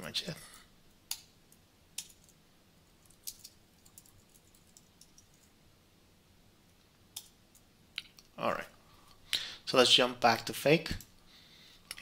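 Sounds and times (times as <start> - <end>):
keyboard typing: 3.0 - 5.5.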